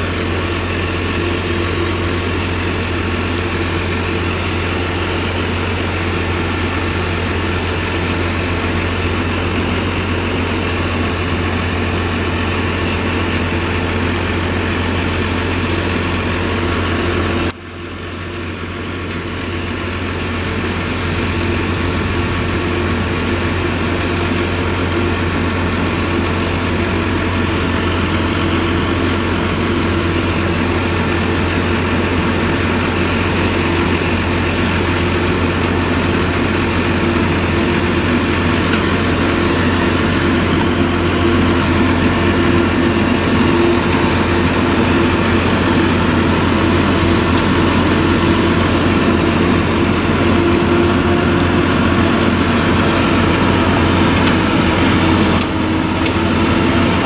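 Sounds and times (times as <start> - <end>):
forage harvester engine roaring: 0.0 - 57.0
tractor engine: 0.0 - 57.0.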